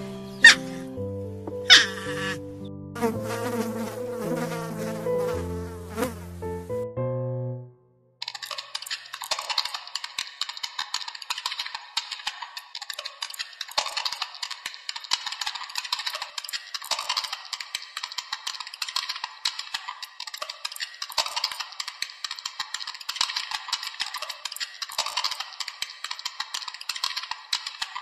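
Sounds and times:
dense clicking and crackling: 8.2s - 28.0s.

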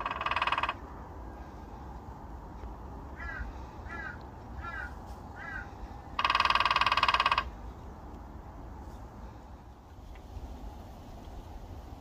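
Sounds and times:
woodpecker drumming on tree trunk: 0.0s - 0.9s, 6.2s - 7.6s
bird calling: 3.2s - 7.6s.

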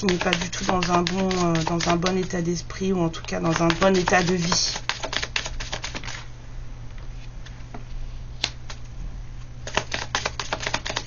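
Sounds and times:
cards riffling: 9.7s - 11.0s.

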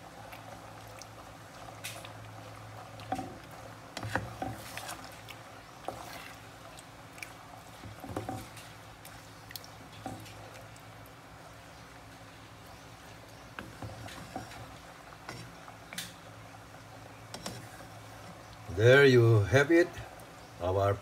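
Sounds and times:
spatula stirring thick stew: 1.8s - 9.2s, 13.4s - 15.6s, 17.2s - 18.4s.

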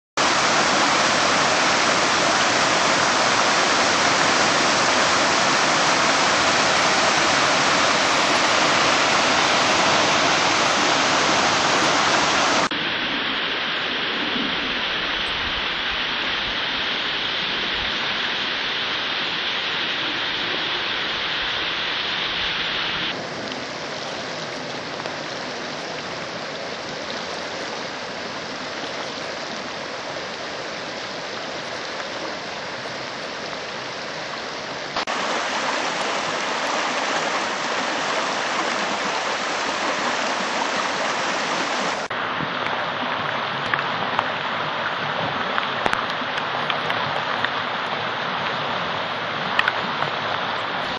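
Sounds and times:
water rushing: 0.0s - 50.9s
muddy water churning: 0.2s - 12.7s
water pouring in waterfalls: 0.2s - 50.9s.

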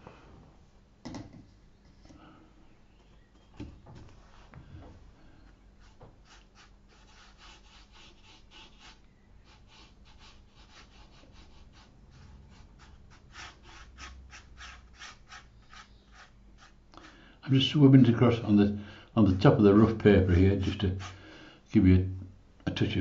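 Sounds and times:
brush scratching on rough paper: 5.8s - 17.7s, 19.2s - 21.2s.

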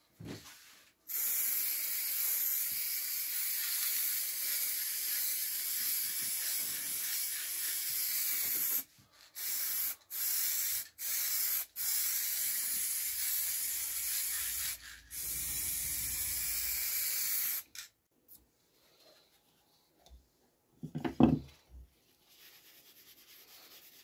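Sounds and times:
spray paint can hissing: 1.1s - 17.9s.

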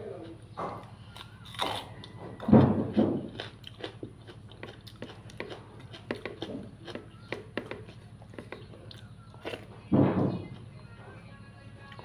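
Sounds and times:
chewing with wet mouth clicks: 3.3s - 9.7s.

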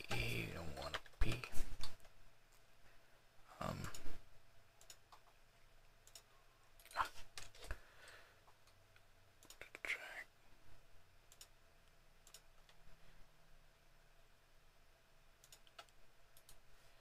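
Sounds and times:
computer mouse clicks: 4.8s - 5.4s, 6.0s - 7.7s, 9.4s - 9.8s, 11.3s - 11.5s, 12.2s - 12.8s, 15.4s - 16.6s.

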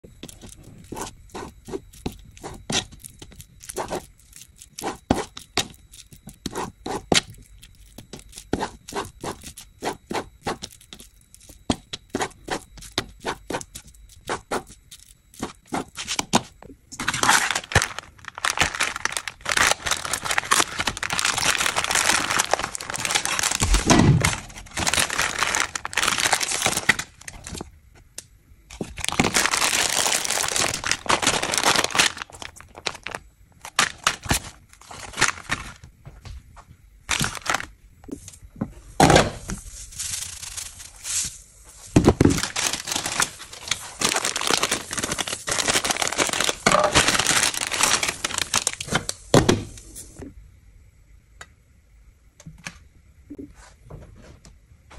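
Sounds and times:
plastic packaging crinkling: 0.1s - 27.7s, 28.7s - 35.9s, 37.1s - 38.3s, 39.4s - 49.3s.

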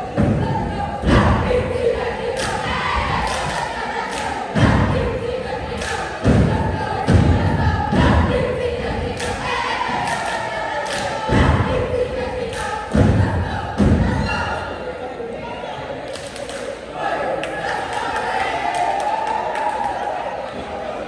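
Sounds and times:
heavy echoing thuds: 0.0s - 10.4s, 11.0s - 14.6s
crowd shouting and chanting: 0.0s - 21.0s.

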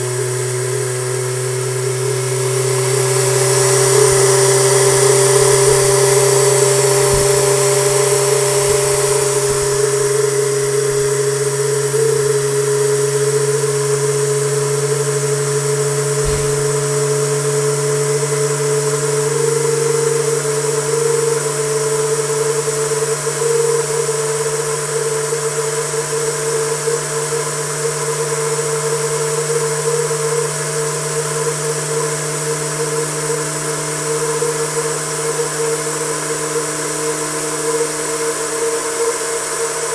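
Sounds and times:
turbine whine: 0.0s - 39.9s
hiss: 1.5s - 11.4s, 15.9s - 17.4s.

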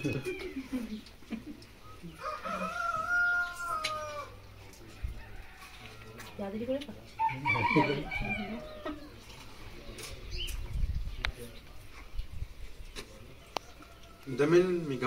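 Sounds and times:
rooster crowing: 2.1s - 6.4s, 7.2s - 9.2s.

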